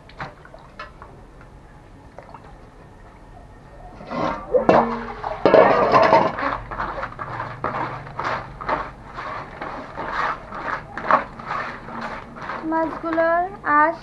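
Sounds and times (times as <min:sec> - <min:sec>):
steel bowl clanking: 0:03.9 - 0:13.4
wet fish scrubbed by hand: 0:04.1 - 0:13.5
water splashing on concrete: 0:04.2 - 0:13.6.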